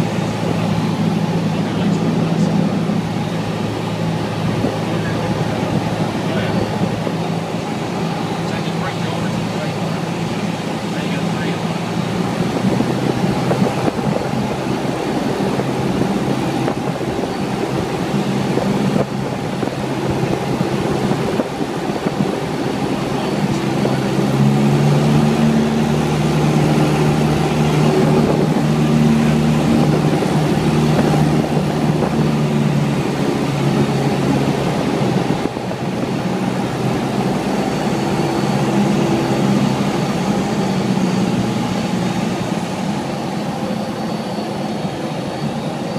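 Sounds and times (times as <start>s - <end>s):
airplane engine droning: 0.0s - 45.9s.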